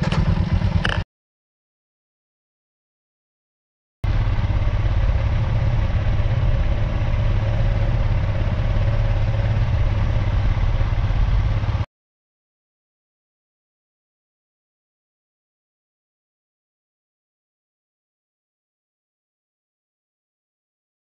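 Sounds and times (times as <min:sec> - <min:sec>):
motorcycle engine rumbling: 0:00.0 - 0:01.0, 0:04.0 - 0:11.9.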